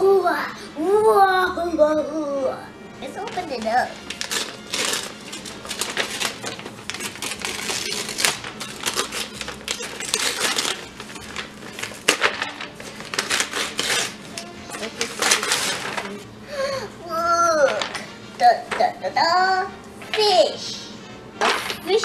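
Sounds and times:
wrapping paper tearing and crinkling: 3.0s - 16.3s, 17.4s - 18.7s.

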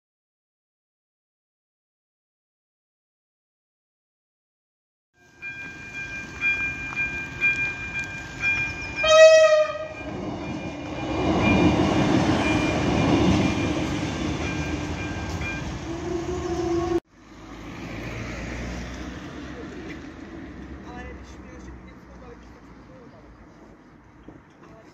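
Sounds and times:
level-crossing bell ringing: 5.2s - 16.0s
train passing over crossing: 5.2s - 24.0s
train horn blast: 9.0s - 10.1s, 15.8s - 17.0s.

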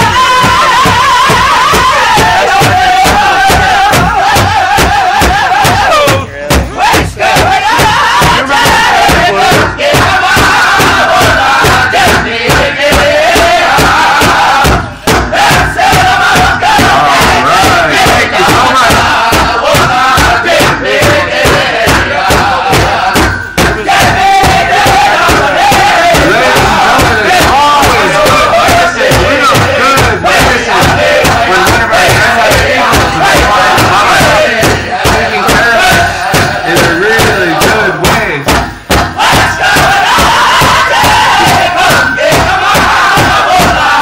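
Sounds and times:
drum fast steady beat: 0.0s - 44.0s
high-pitched chanted singing: 0.0s - 44.0s.

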